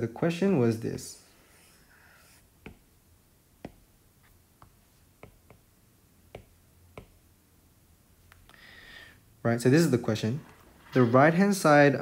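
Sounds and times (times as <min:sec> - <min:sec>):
stylus tapping on glass screen: 0:04.6 - 0:05.7, 0:06.3 - 0:07.2.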